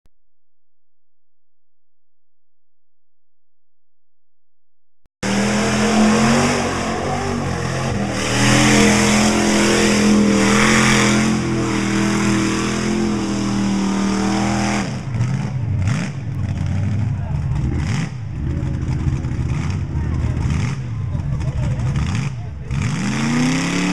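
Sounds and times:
tires churning mud: 5.2 - 23.9
truck engine revving: 5.2 - 23.9.

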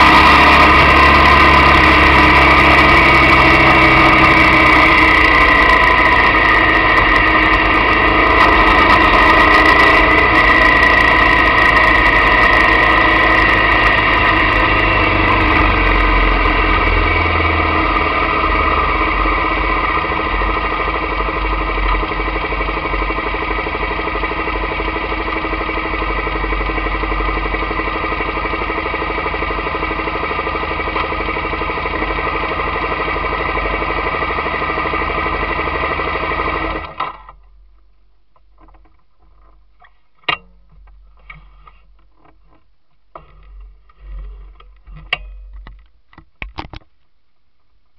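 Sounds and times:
motorcycle engine idling: 0.0 - 37.8.

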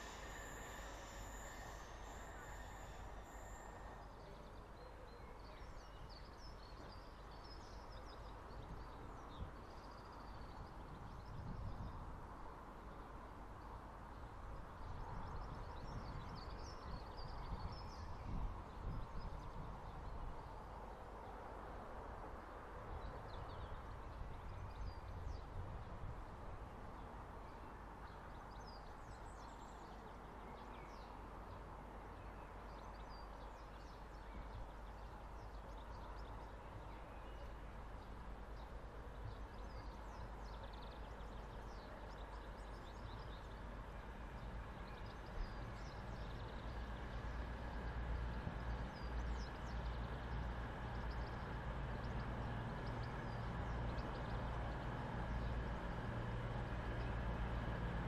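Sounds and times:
diesel train engine hum: 0.0 - 5.8, 33.2 - 58.0.

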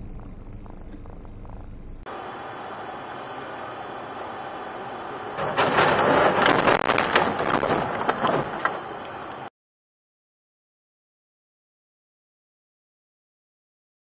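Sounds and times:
car road noise hum: 0.0 - 9.5.

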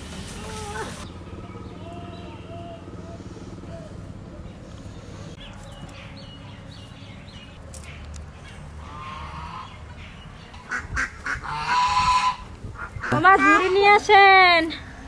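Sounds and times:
birds chirping: 0.5 - 15.0
poultry honking calls: 8.8 - 9.9, 10.6 - 14.0.

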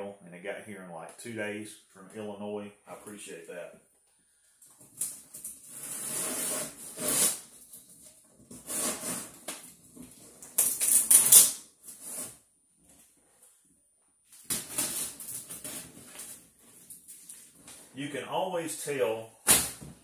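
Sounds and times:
cardboard box tearing and scraping: 5.6 - 7.5, 8.5 - 9.5.

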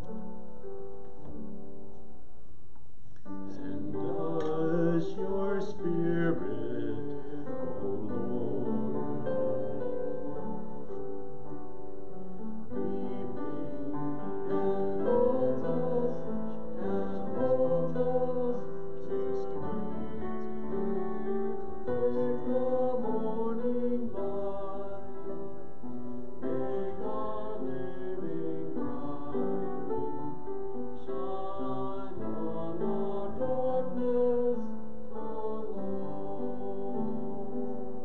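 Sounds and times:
slow hymn on keyboard: 0.0 - 38.0.

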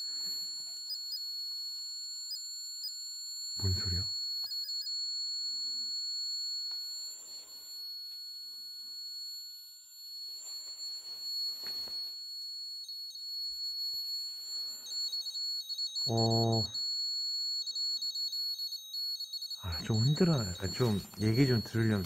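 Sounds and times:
high-pitched electronic whine: 3.6 - 5.0, 10.2 - 22.0
radio static bursts: 19.7 - 22.0.

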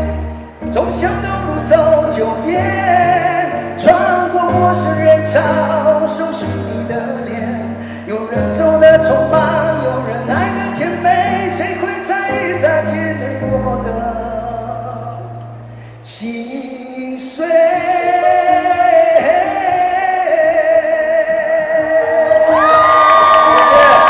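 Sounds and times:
instrumental accompaniment with bass: 0.0 - 16.3
man singing into microphone: 0.0 - 24.0.

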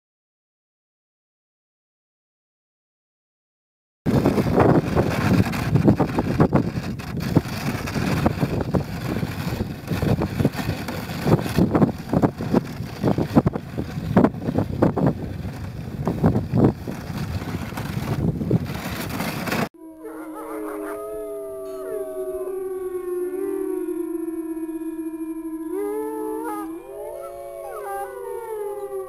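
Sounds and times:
sled knocking and rattling: 4.1 - 19.7
sled runners rushing over snow: 4.1 - 19.7
wind buffeting microphone: 4.1 - 19.7.

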